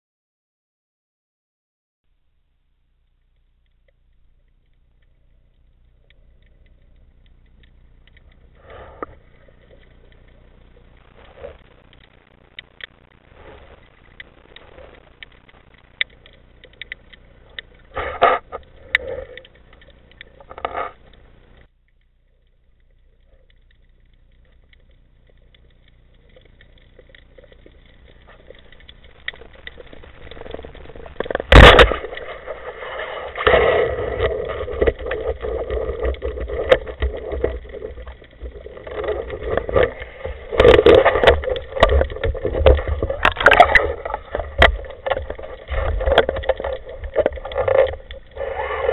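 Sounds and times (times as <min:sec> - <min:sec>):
underwater water noise: 0:02.1 - 0:48.9
sharp crack: 0:27.8 - 0:48.9.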